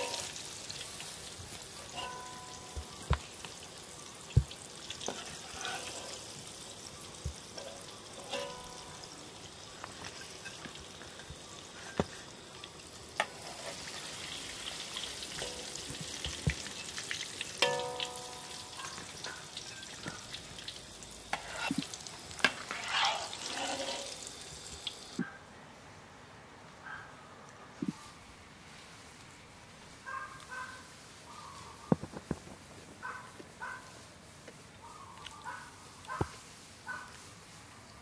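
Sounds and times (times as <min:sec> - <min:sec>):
fritters sizzling in oil: 0:00.0 - 0:25.2, 0:29.9 - 0:38.0
metal ladle knocking wok: 0:17.6 - 0:19.0.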